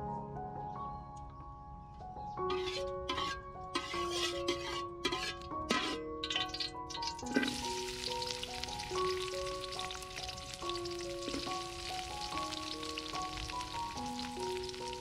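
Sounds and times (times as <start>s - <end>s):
food sizzling in hot oil: 3.8s - 15.0s.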